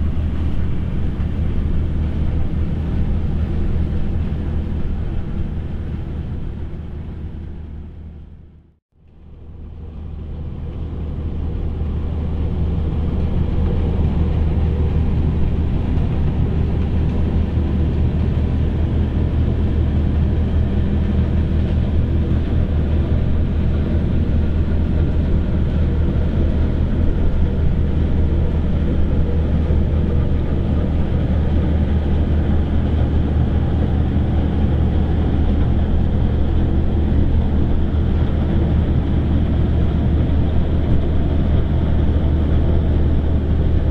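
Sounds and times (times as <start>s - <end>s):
ship diesel engine drone: 0.0s - 43.9s.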